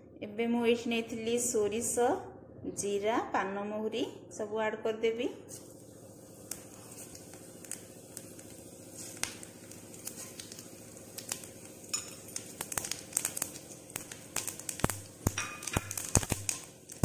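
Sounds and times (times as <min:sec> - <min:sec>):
seeds sputtering in hot oil: 0:05.5 - 0:17.0.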